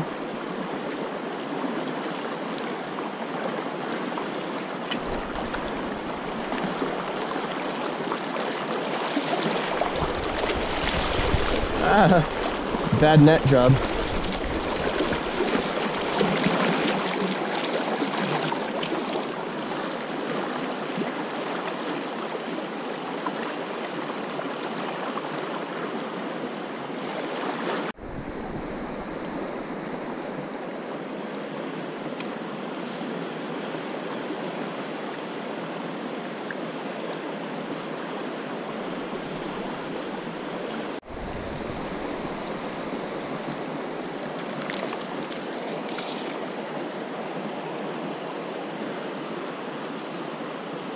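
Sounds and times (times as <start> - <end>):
river water rushing: 0.0 - 50.9.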